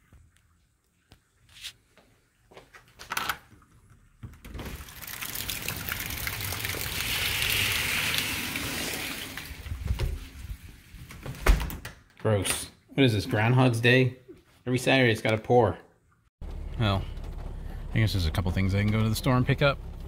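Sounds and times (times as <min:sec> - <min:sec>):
heavy rain pouring: 0:04.8 - 0:10.4.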